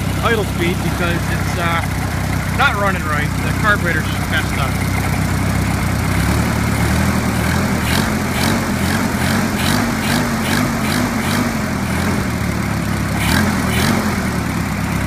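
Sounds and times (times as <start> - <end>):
engine idling with light tick: 0.0 - 15.0.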